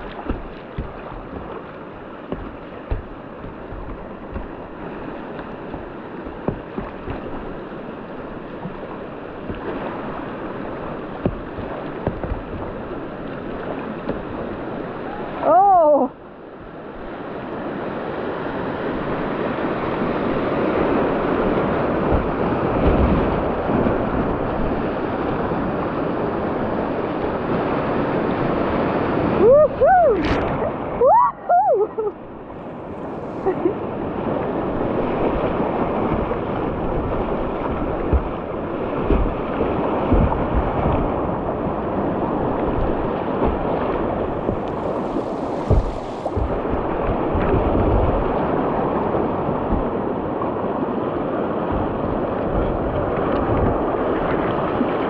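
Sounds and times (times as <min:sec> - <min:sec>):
rushing river water: 0:00.0 - 0:55.0
person calling out: 0:15.4 - 0:16.1.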